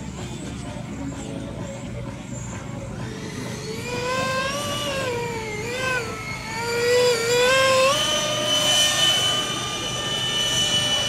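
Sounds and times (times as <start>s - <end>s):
model jet fans whining: 0.0s - 11.0s.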